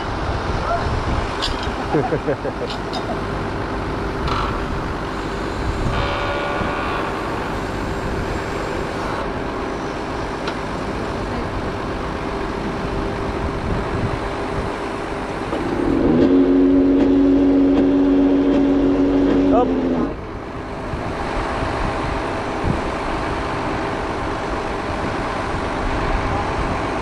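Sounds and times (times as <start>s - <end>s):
engine humming: 0.0s - 27.0s.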